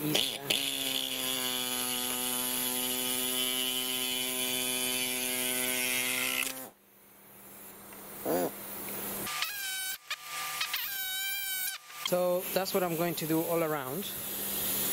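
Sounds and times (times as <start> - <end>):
soldering gun buzzing: 0.0 - 6.8, 9.2 - 13.0.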